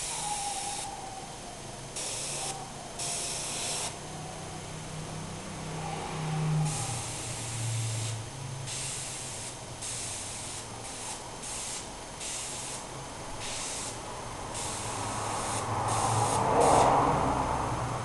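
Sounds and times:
airbrush spraying hissing bursts: 0.0 - 0.9, 2.0 - 4.0, 6.6 - 17.0.

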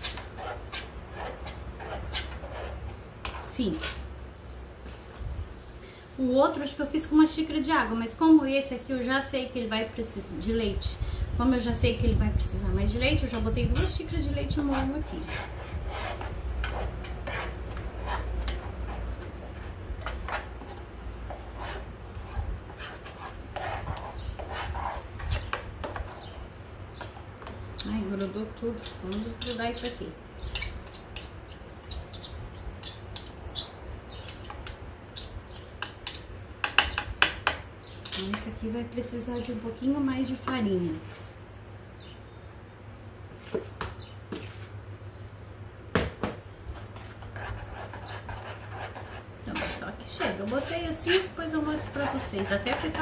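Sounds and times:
spoon scraping while stirring: 0.0 - 4.1, 13.4 - 26.4, 28.8 - 36.3, 46.7 - 53.0
metal spoon scraping pot: 28.2 - 36.0, 47.4 - 53.0.

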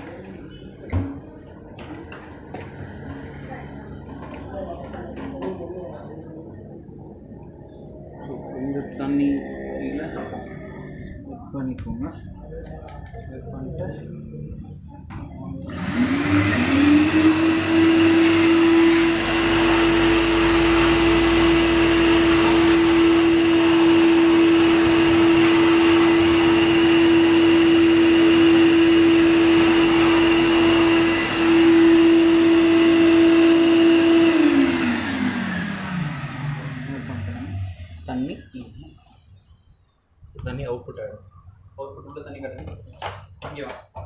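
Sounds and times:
vacuum cleaner motor whine: 15.6 - 40.2.

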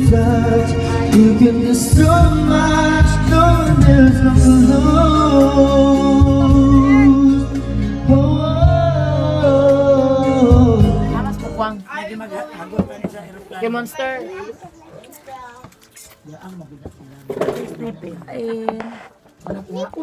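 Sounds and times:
person singing: 0.0 - 11.7
instrumental backing music: 0.0 - 20.0.

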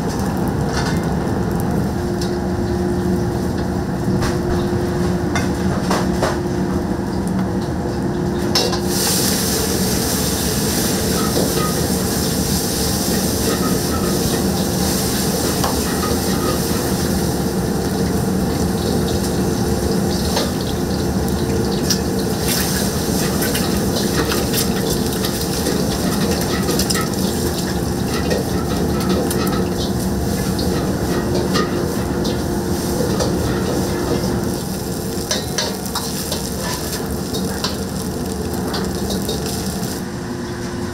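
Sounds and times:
burner hum: 0.0 - 40.9
hiss: 8.9 - 13.6.

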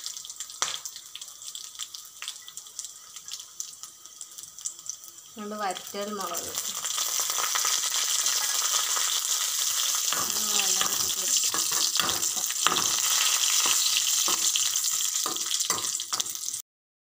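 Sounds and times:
oil sizzling: 0.0 - 16.6
metal spoon scraping pan: 10.1 - 16.4.

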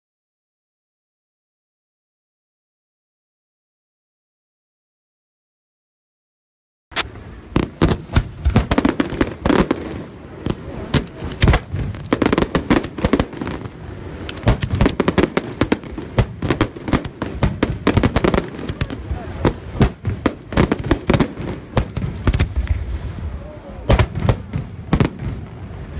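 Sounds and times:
fireworks bursting: 6.9 - 25.9.

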